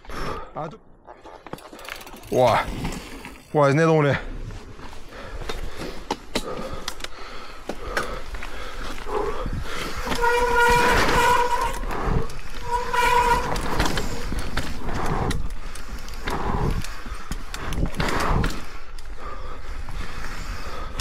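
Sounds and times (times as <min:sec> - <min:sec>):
bike tyres on dirt: 0:01.4 - 0:21.0
bike rattling over bumps: 0:01.5 - 0:21.0
disc brakes squealing: 0:10.0 - 0:12.0, 0:12.6 - 0:14.2.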